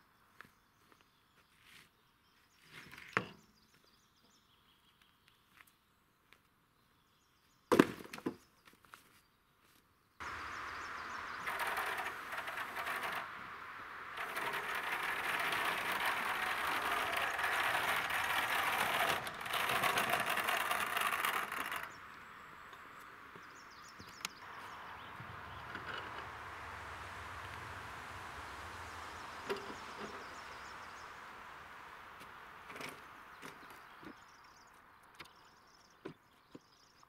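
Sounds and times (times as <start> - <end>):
rough uneven lumber noise: 10.2 - 35.4.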